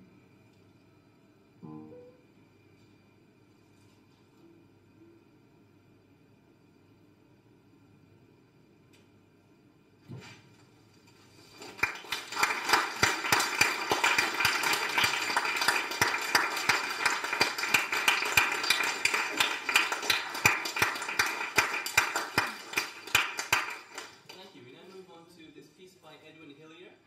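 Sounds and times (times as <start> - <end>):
small audience applauding: 11.4 - 24.6.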